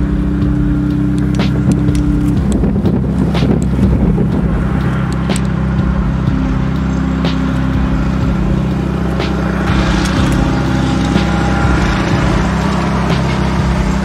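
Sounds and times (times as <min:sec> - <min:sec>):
diesel locomotive engine drone: 0:00.0 - 0:14.0
clicks: 0:00.5 - 0:03.9.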